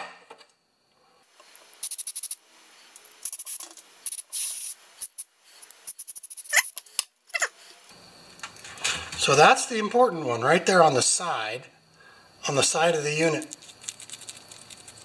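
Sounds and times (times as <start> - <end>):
aerosol spray hissing bursts: 3.3 - 6.5
sharp squeak: 5.9 - 7.5.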